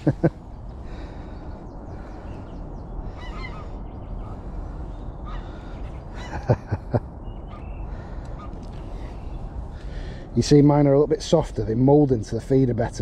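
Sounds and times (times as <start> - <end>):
faint bird calls: 0.0 - 10.3
geese honking: 3.0 - 6.5.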